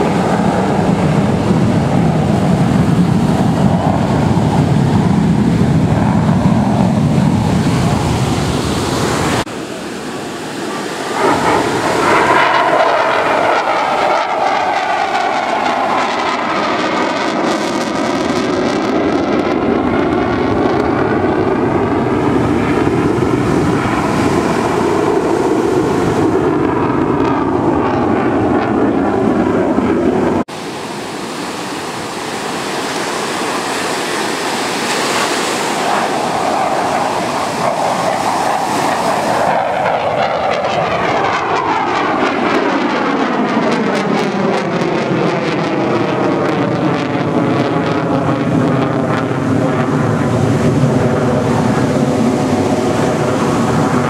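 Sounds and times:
fighter jet roar: 0:00.0 - 0:54.0.

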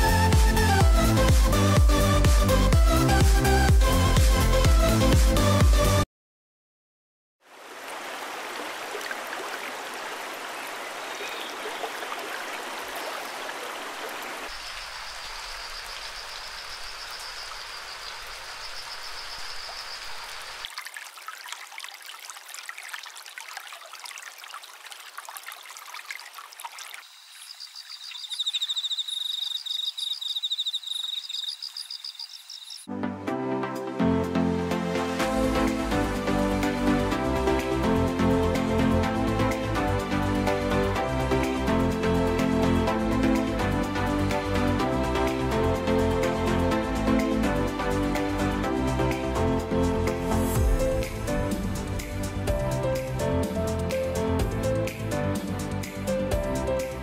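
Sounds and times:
water running and trickling: 0:07.5 - 0:32.9
high fast-pulsing chirp: 0:27.0 - 0:32.9.

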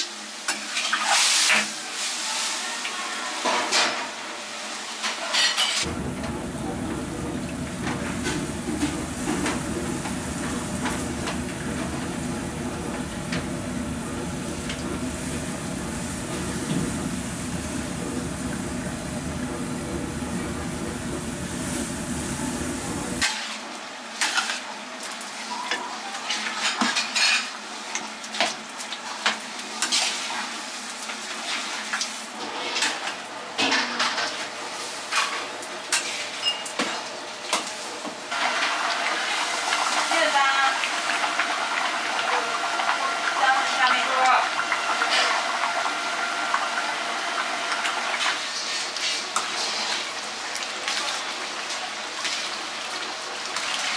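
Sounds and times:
meat sizzling in a wok: 0:00.0 - 0:05.1, 0:38.3 - 0:53.9.

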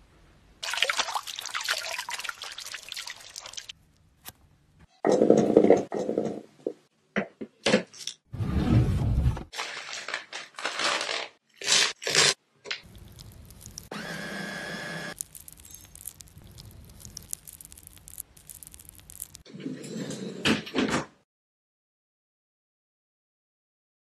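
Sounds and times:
blender running: 0:13.9 - 0:15.2.

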